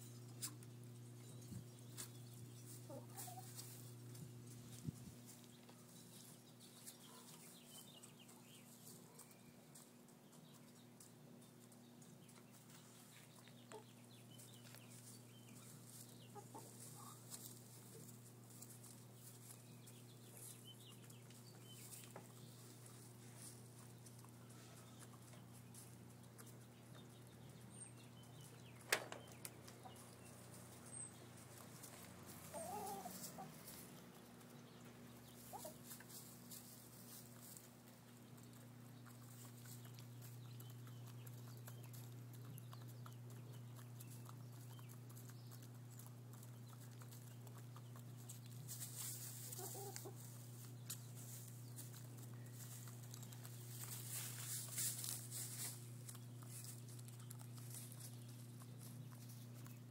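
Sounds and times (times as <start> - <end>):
hens clucking: 1.9 - 6.3, 12.2 - 19.6, 28.2 - 59.9.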